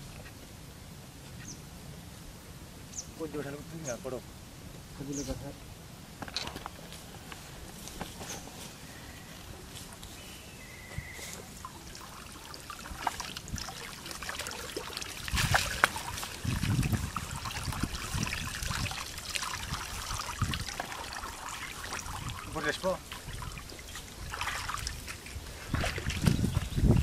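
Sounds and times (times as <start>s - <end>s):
water streaming off net: 11.3s - 26.5s
water splashing and dripping: 11.3s - 27.0s
fish thrashing in water: 11.5s - 26.4s.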